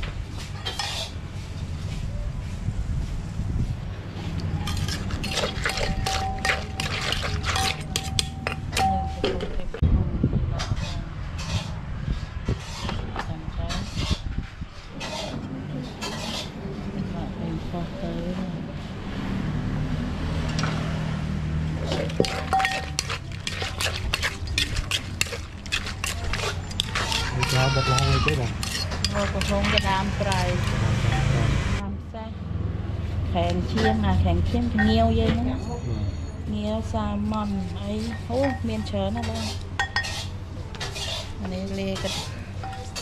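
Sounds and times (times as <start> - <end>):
spoon clinking in clay mortar: 4.4 - 9.6, 21.8 - 31.3, 34.7 - 35.0, 37.4 - 41.2.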